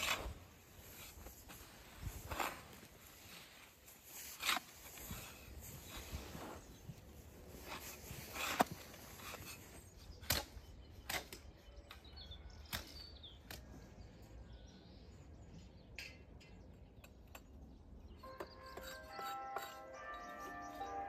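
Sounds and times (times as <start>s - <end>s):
hoe scraping mortar mix: 0.0s - 6.6s, 18.2s - 21.0s.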